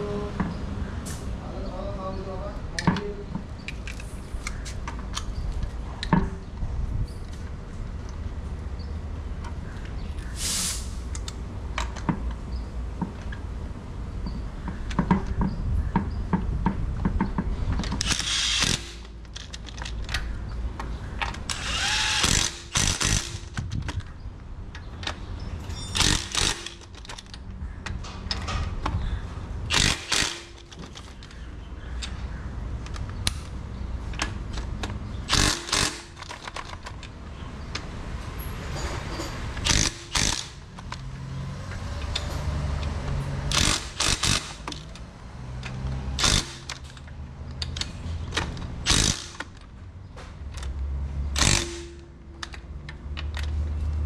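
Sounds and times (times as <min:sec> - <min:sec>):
impact wrench hammering: 0:21.5 - 0:23.6, 0:26.0 - 0:27.2, 0:29.7 - 0:31.1, 0:34.8 - 0:36.6, 0:39.6 - 0:41.0, 0:43.4 - 0:45.0, 0:45.7 - 0:47.0, 0:48.4 - 0:49.6, 0:51.4 - 0:52.6.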